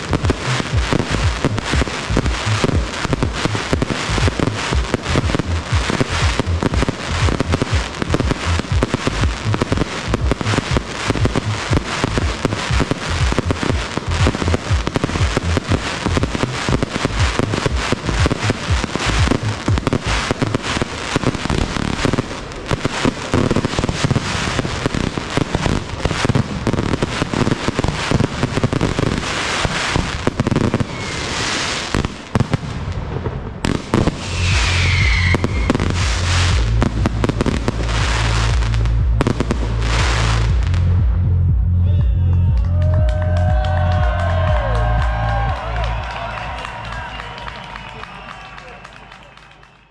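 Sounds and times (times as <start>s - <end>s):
fireworks bangs and crackles: 0.0s - 49.7s.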